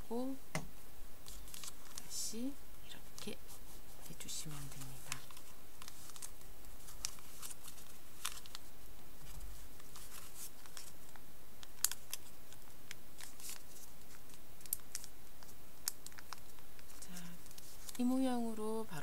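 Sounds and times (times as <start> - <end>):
paper crackling and rustling: 1.2 - 2.2, 3.2 - 18.4.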